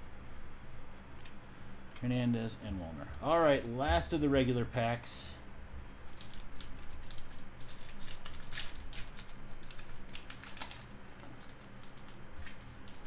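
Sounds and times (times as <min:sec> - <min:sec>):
wrapper crinkling being torn: 0:05.9 - 0:13.0.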